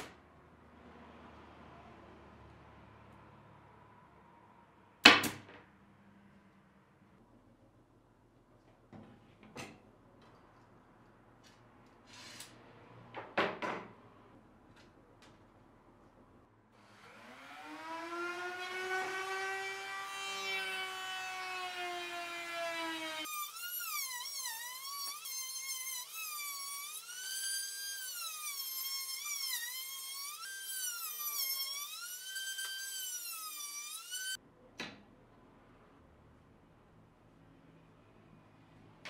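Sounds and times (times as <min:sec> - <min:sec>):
router whining and cutting wood: 0:16.8 - 0:34.4.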